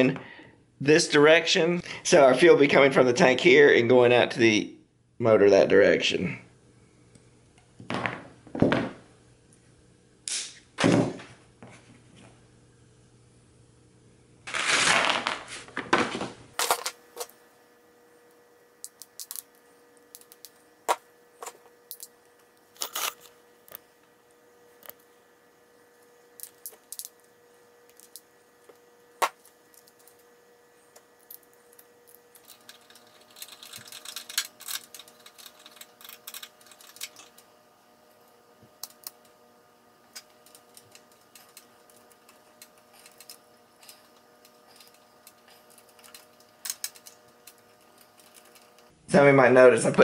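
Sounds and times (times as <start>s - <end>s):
pliers and metal parts clicking: 18.8s - 20.6s, 21.4s - 22.1s, 26.4s - 27.2s, 31.2s - 37.4s.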